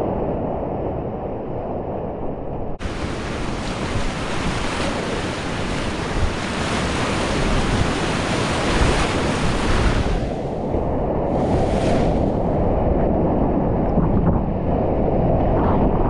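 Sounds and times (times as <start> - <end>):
whitewater rushing: 2.8 - 10.7.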